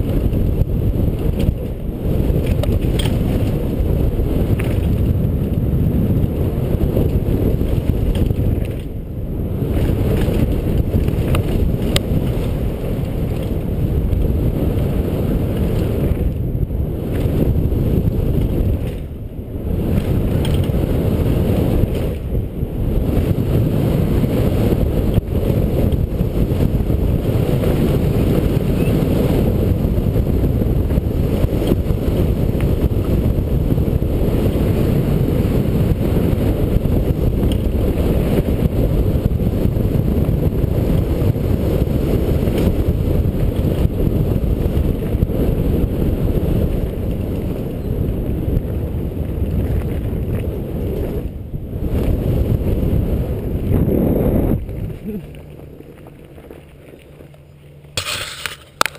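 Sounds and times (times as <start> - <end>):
bike rattling: 0.0 - 58.9
wind buffeting microphone: 0.0 - 58.9
tyres crunching on gravel: 54.4 - 58.9.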